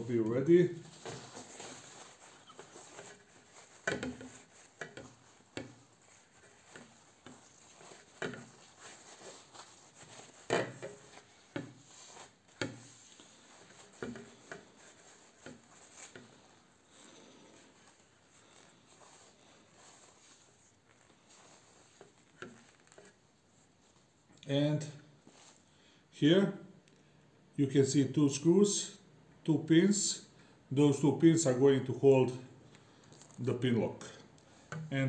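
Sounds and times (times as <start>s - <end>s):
paper towel rubbing plastic visor: 0.0s - 24.3s.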